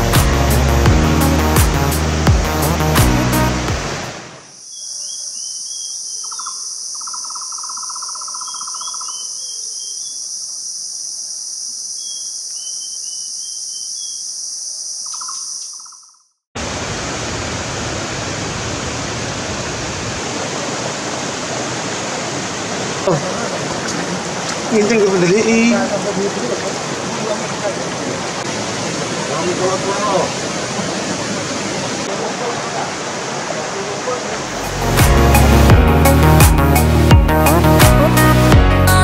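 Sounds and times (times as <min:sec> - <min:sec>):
stream water rushing over rocks: 0:00.0 - 0:04.5, 0:16.6 - 0:38.6
small bird twittering: 0:04.7 - 0:10.3, 0:15.0 - 0:16.2.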